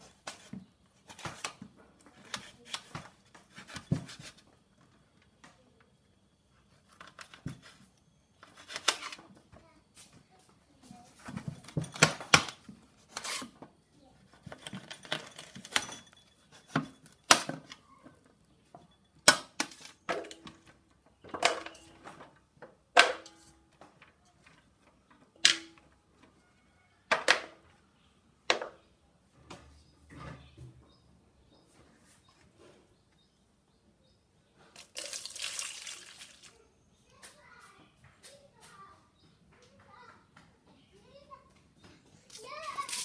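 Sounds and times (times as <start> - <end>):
kitchen utensils knocking and clinking: 14.3 - 17.7, 18.8 - 22.0, 22.9 - 23.7, 25.4 - 25.9.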